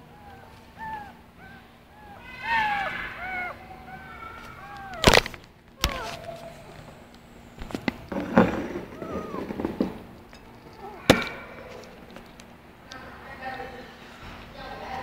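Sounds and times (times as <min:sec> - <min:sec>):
kittens meowing: 0:00.0 - 0:07.0, 0:08.5 - 0:12.0.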